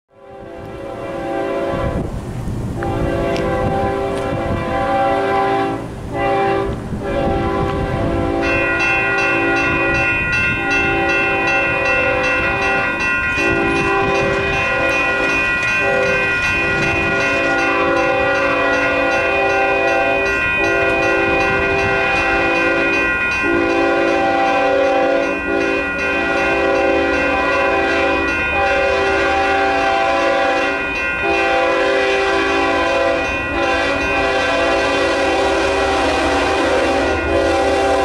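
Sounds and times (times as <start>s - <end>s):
train horn blowing: 0.1s - 38.0s.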